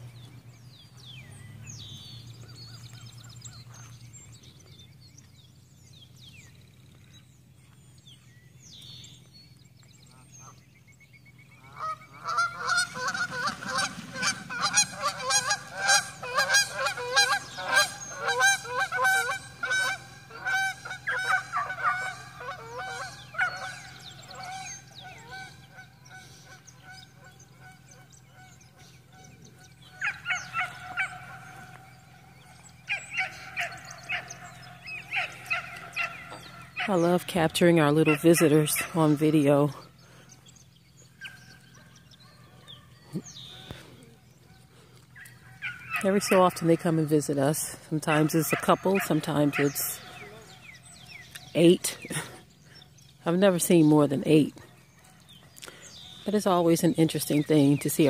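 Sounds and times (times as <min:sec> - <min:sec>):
geese honking: 0:11.6 - 0:58.0.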